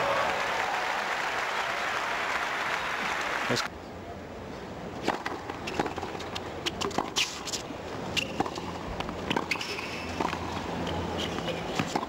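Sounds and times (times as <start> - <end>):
racquets striking tennis ball: 5.0 - 12.0
sneakers squeaking on court: 6.6 - 12.0.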